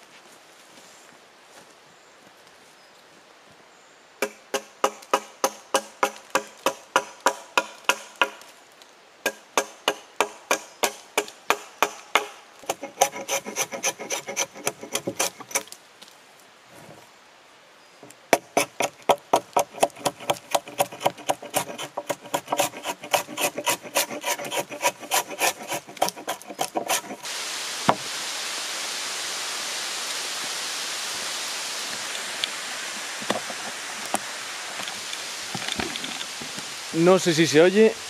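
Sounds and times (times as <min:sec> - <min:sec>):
hatchet scraping bark: 0:04.2 - 0:08.4, 0:09.3 - 0:15.8, 0:18.3 - 0:27.3
rain falling on leaves: 0:27.2 - 0:38.0.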